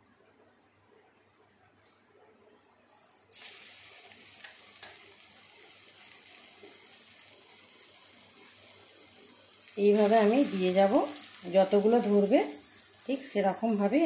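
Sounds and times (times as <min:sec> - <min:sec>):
batter dropping into hot oil: 0:03.0 - 0:05.4
oil sizzling while deep-frying: 0:03.0 - 0:14.0.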